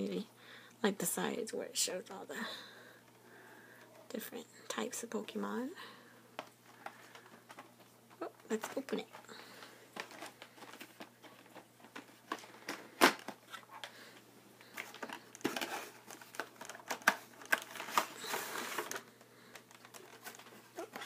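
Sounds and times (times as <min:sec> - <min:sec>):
plastic crinkling and rustling: 0:06.4 - 0:21.0.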